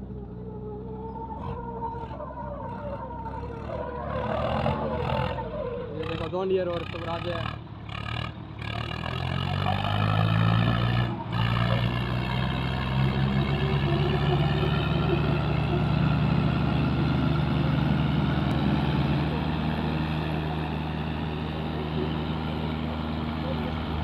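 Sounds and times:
tractor engines under load: 0.0s - 24.0s.

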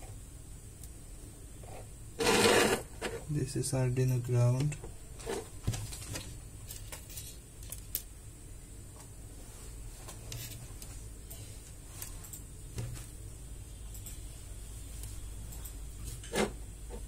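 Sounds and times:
low steady hum: 0.0s - 17.0s
wires clicking and tapping: 5.7s - 8.1s.

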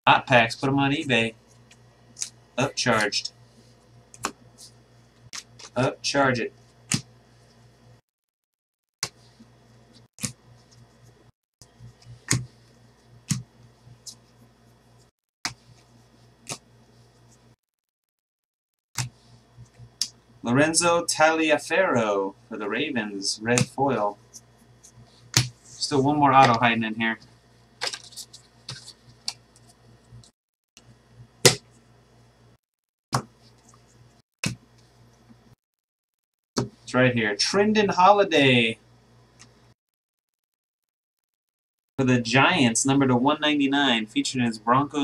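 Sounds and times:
low steady hum: 0.1s - 8.0s, 19.1s - 32.6s.

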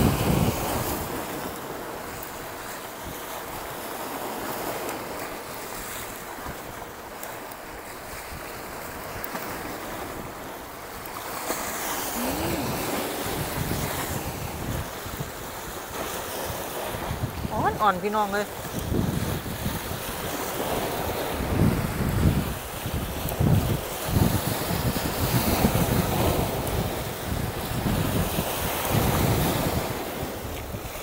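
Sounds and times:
strong wind over microphone: 0.0s - 1.4s, 12.2s - 15.7s, 16.4s - 17.9s, 18.6s - 31.0s
sea surf washing on shore: 0.0s - 31.0s.

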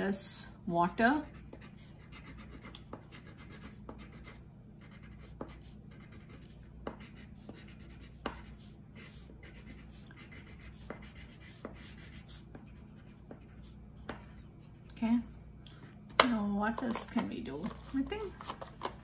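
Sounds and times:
crayon rubbing on paper: 1.2s - 13.8s.

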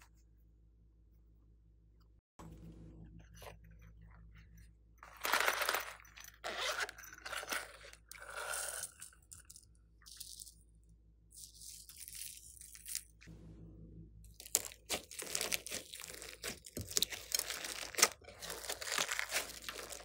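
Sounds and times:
plastic case crunching: 14.4s - 20.0s.

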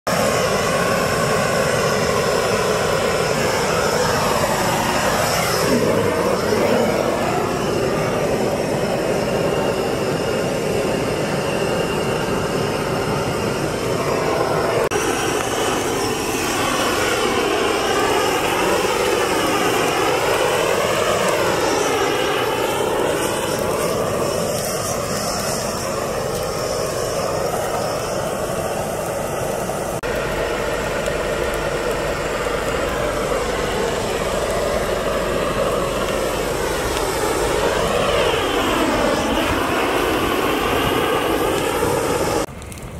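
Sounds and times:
gas torch roaring: 0.1s - 42.9s.

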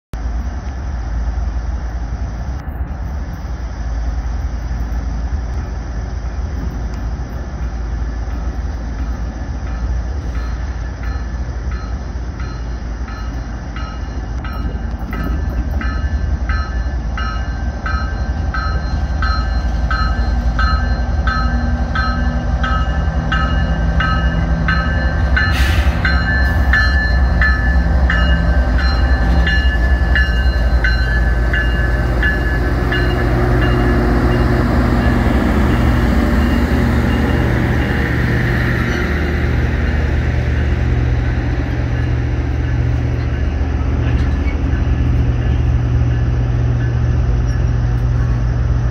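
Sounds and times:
diesel locomotive engine rumbling: 0.1s - 48.9s
locomotive bell ringing: 9.1s - 48.4s
short hiss: 25.5s - 26.0s.

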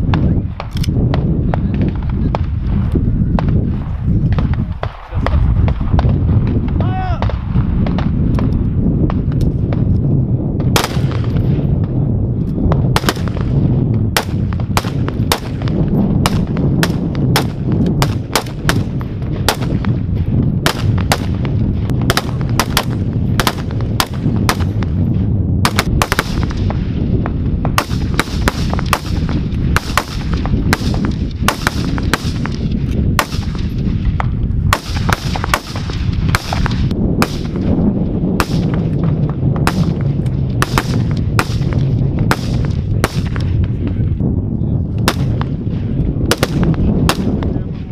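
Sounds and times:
low rumble: 0.0s - 47.9s
rifle shots: 10.6s - 11.7s, 12.8s - 25.0s, 25.6s - 43.6s, 45.0s - 47.5s.

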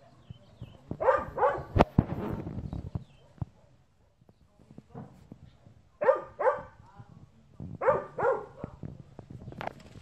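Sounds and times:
dog barking: 1.0s - 1.8s, 6.0s - 6.8s, 7.8s - 8.8s.

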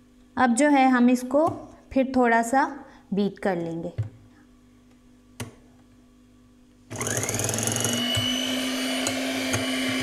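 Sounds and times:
electric hand mixer running: 6.9s - 10.0s.

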